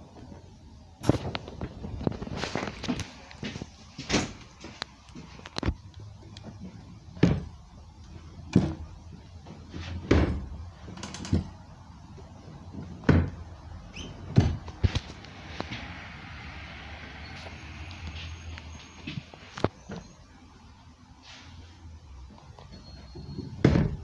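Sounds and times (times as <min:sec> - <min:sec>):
dull knocks and thumps: 0:06.5 - 0:07.6, 0:08.5 - 0:10.5, 0:12.6 - 0:13.4, 0:14.3 - 0:15.1.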